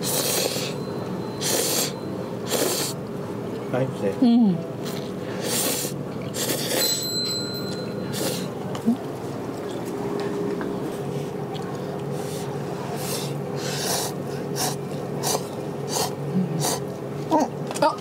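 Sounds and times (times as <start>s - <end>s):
person slurping noodles: 0.0s - 0.8s, 1.4s - 3.0s, 5.4s - 6.9s, 13.0s - 16.8s
steady low hum: 0.0s - 18.0s.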